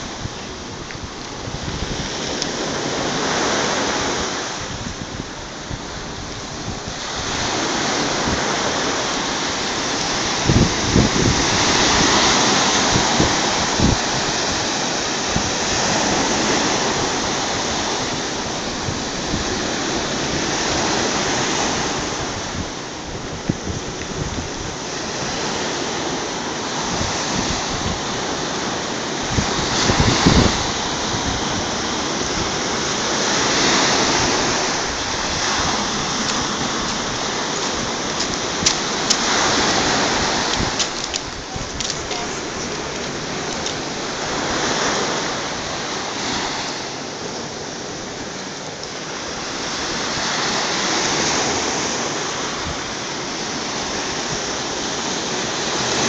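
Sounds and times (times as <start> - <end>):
wind thumps on microphone: 0.0 - 25.5, 29.2 - 46.8
surf breaking on beach: 0.0 - 56.0.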